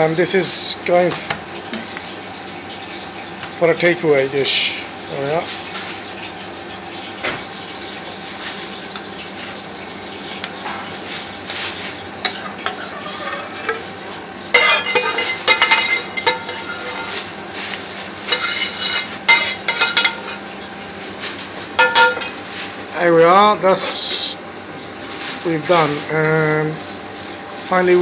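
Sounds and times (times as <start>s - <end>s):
spoon scraping and knocking pan: 12.3s - 13.8s, 14.5s - 17.2s, 18.3s - 20.4s.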